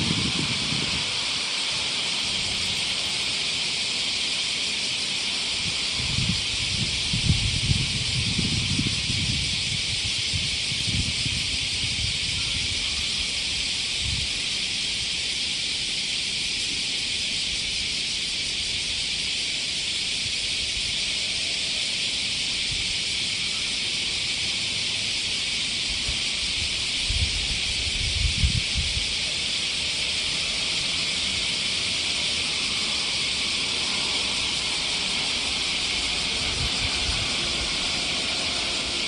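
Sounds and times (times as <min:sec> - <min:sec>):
wind rumble on microphone: 0:00.0 - 0:03.4, 0:05.5 - 0:15.0, 0:25.8 - 0:29.4, 0:34.0 - 0:39.0
cicadas droning: 0:00.0 - 0:39.0.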